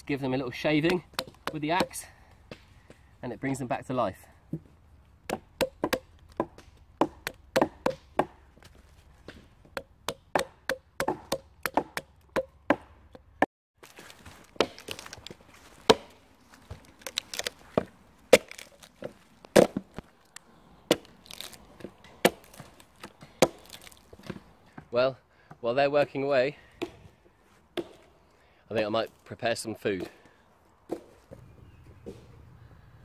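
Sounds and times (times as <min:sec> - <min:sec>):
axe striking wood: 0:00.8 - 0:02.7, 0:04.5 - 0:13.2, 0:14.6 - 0:15.2, 0:15.8 - 0:16.2, 0:17.1 - 0:18.8, 0:19.5 - 0:19.9, 0:22.2 - 0:24.4, 0:27.8 - 0:28.1, 0:30.0 - 0:30.2.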